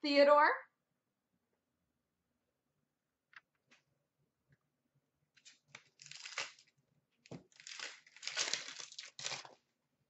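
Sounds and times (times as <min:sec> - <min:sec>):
plastic wrapper crinkling: 0:05.4 - 0:09.7.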